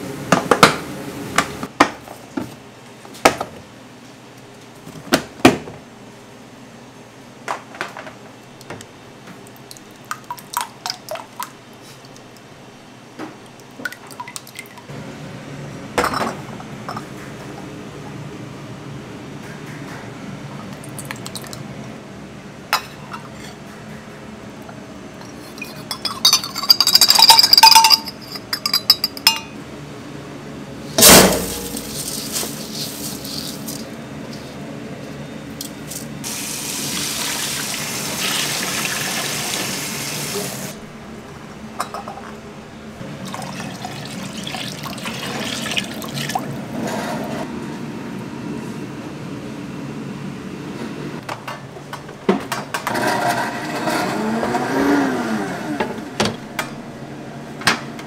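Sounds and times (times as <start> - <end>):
metal cup and bowl clinking: 25.2 - 29.6
loud metal clank: 31.0 - 32.0
water pouring: 36.3 - 40.7, 43.2 - 46.6.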